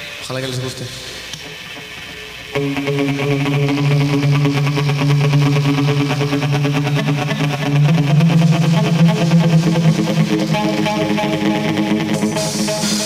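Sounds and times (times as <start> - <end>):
guitar notes picked: 1.4 - 13.0
held low note: 2.5 - 12.9.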